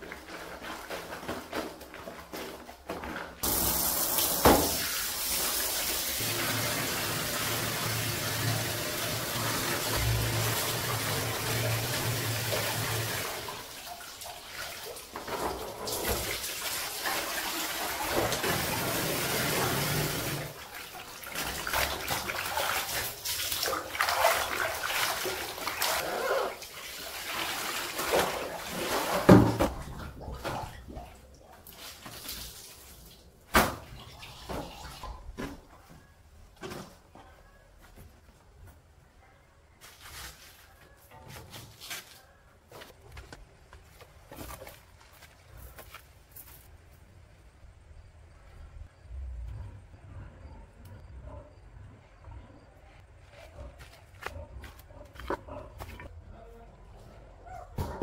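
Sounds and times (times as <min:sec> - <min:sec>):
water running and splashing: 0:03.4 - 0:33.3.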